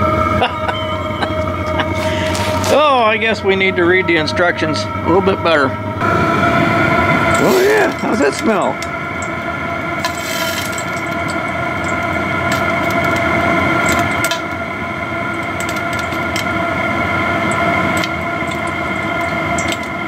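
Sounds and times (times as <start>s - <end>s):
heater blower fan whine: 0.0s - 20.0s
burner rushing: 5.8s - 20.0s.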